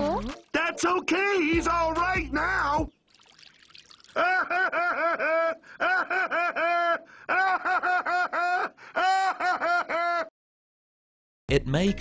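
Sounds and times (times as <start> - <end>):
high-pitched voice laughing: 4.2 - 10.3.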